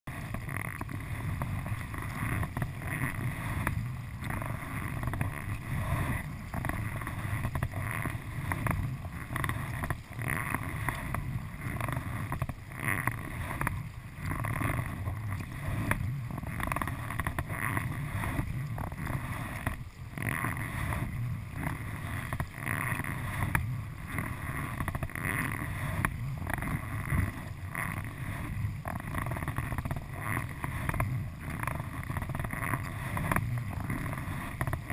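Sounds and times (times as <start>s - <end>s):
paddle strokes splashing: 0.1s - 34.9s
water washing along hull: 0.1s - 34.9s.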